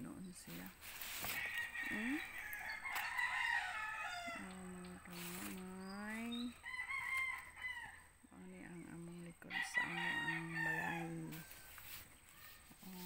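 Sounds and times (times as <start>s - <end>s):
rooster crowing: 1.3s - 4.6s, 6.6s - 8.1s, 9.5s - 12.7s.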